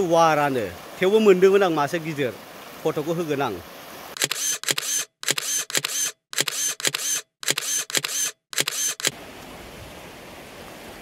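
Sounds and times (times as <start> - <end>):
camera shutter clicks: 4.2 - 9.2.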